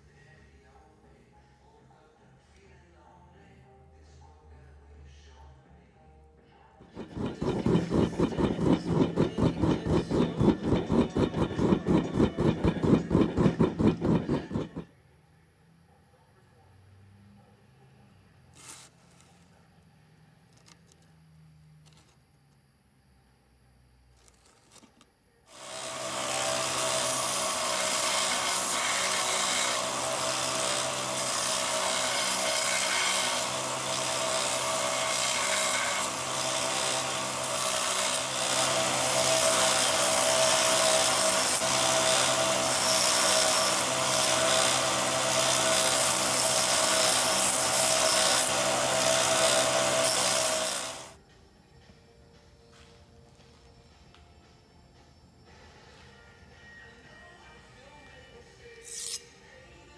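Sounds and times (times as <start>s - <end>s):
belt sander motor hum: 6.8s - 14.9s
copper grinding on sanding belt: 6.8s - 14.9s, 25.5s - 51.2s.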